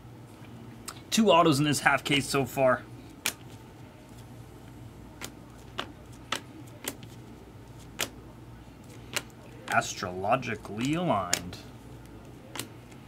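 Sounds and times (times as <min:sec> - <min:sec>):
low steady hum: 0:00.0 - 0:13.0
trading cards clicking: 0:05.2 - 0:07.2, 0:07.8 - 0:08.2, 0:08.9 - 0:09.9, 0:10.6 - 0:13.0.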